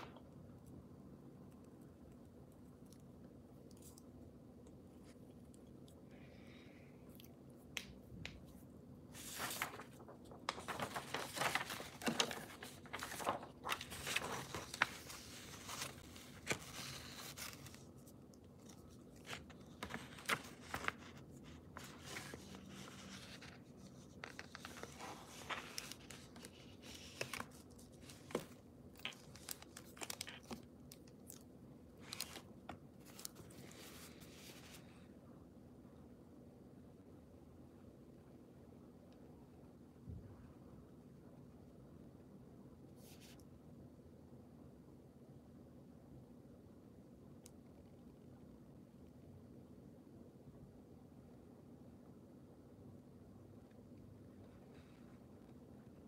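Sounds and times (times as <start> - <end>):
paper rustling and crinkling: 9.1 - 31.4, 32.0 - 35.0.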